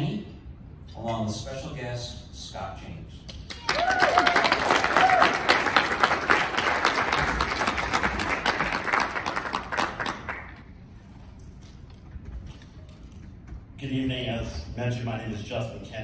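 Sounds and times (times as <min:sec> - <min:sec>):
audience applauding: 0:03.5 - 0:10.6.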